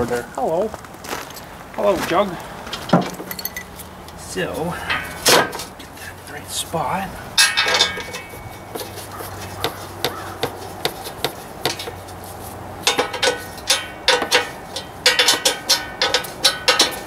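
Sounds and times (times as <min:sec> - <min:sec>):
metal parts clicking and knocking: 0:02.7 - 0:03.9, 0:07.4 - 0:09.0, 0:12.8 - 0:17.0.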